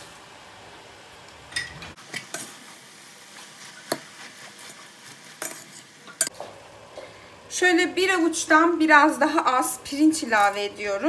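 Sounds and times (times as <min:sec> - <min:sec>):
metal spoon scraping pot: 0:05.4 - 0:06.3.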